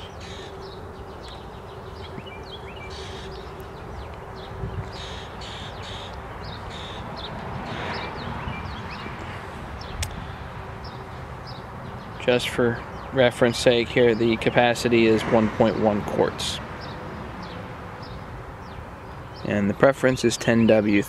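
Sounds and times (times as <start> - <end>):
faint steady hum: 0.0 - 7.4
outdoor background noise: 0.0 - 21.0
small birds chirping: 0.0 - 21.0.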